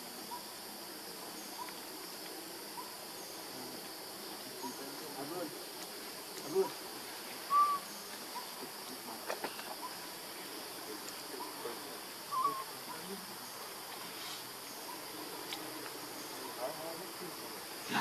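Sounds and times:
insects droning: 0:00.0 - 0:18.0
faint ticks: 0:01.6 - 0:02.4, 0:15.4 - 0:16.0
high-pitched animal calls: 0:12.3 - 0:13.0.

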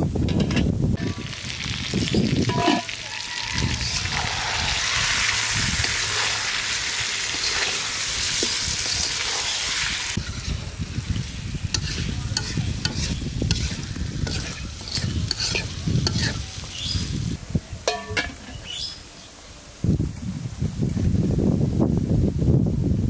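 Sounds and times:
chicken sizzling in oil: 0:01.0 - 0:17.4
spatula scraping a pan: 0:02.1 - 0:17.0.

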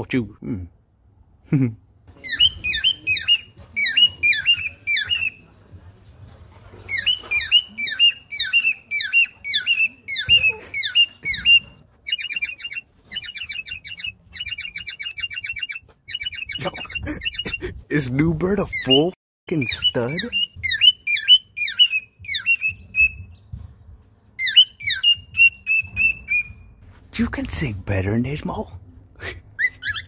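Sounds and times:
bird chattering trills: 0:02.2 - 0:05.4, 0:06.9 - 0:17.6, 0:18.7 - 0:23.2
cockatiel whistling: 0:02.2 - 0:05.4, 0:06.9 - 0:17.6, 0:18.8 - 0:23.4, 0:24.4 - 0:26.7, 0:29.6 - 0:30.0.

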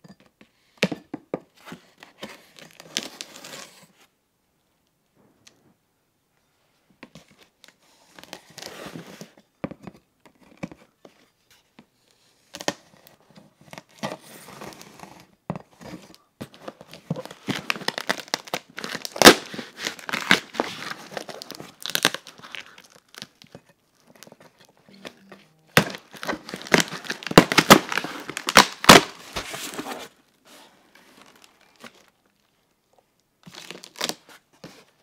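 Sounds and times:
tape and plastic wrap crinkling: 0:16.1 - 0:30.2, 0:30.9 - 0:32.7, 0:33.4 - 0:35.0.

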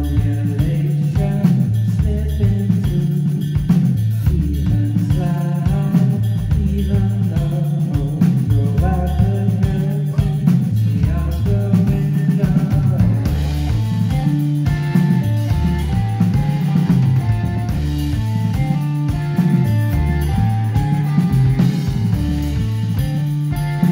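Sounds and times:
drum kit: 0:00.0 - 0:23.9
electric bass: 0:00.0 - 0:23.9
person singing: 0:00.0 - 0:23.9
electric guitars: 0:11.4 - 0:23.9.

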